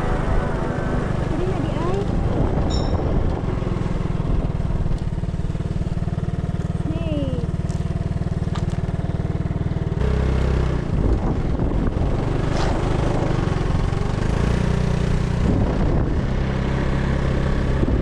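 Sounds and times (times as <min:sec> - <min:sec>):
wind rushing: 0:00.0 - 0:04.9
motorcycle engine running: 0:00.0 - 0:18.0.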